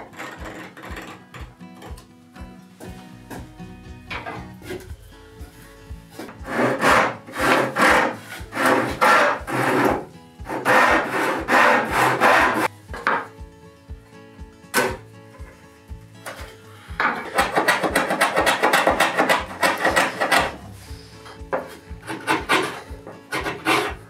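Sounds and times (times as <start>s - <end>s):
hand saw cutting wood: 0.0s - 1.6s, 6.1s - 12.7s, 16.3s - 24.0s
faint background music: 0.0s - 24.0s.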